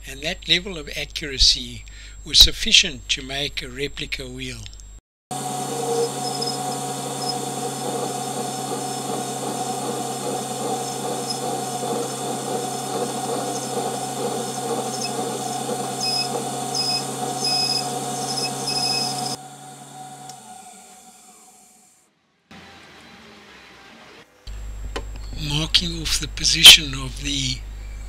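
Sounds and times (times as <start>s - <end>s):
lathe motor hum: 5.3s - 22.0s
lathe tool squealing on metal: 5.6s - 19.4s.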